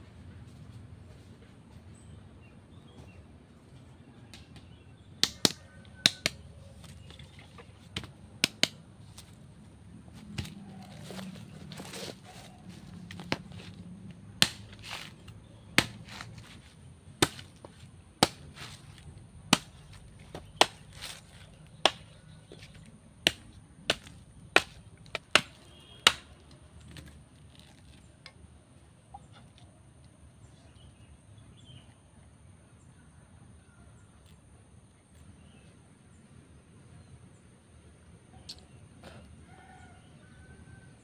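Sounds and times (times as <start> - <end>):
machete chopping coconut husk: 4.3 - 9.4, 10.1 - 28.0.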